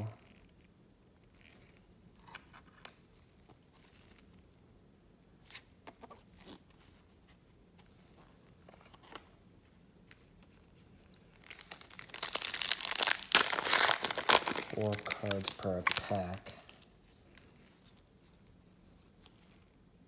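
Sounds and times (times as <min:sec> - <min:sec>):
foil card pack tearing: 0:11.4 - 0:16.4
trading cards clicking and rustling: 0:11.4 - 0:16.8.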